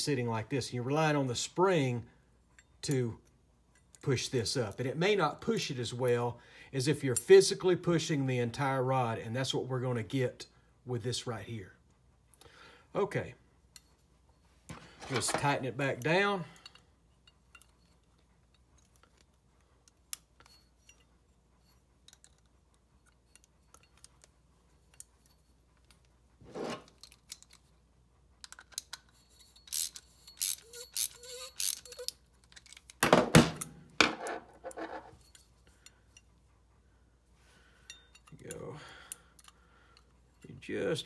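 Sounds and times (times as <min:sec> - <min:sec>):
tools clattering on bench: 0:14.7 - 0:15.6, 0:31.9 - 0:35.9
wrench clicking on metal: 0:28.4 - 0:33.0.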